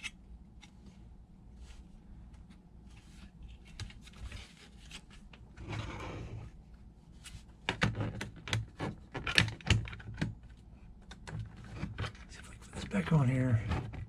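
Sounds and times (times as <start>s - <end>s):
plastic parts clicking and knocking: 7.6s - 12.3s.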